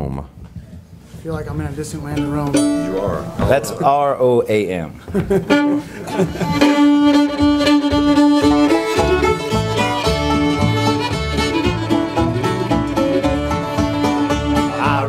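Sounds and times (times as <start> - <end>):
bluegrass string band: 1.8 - 4.0, 5.2 - 15.0
fiddle long note: 2.1 - 4.3, 5.5 - 15.0.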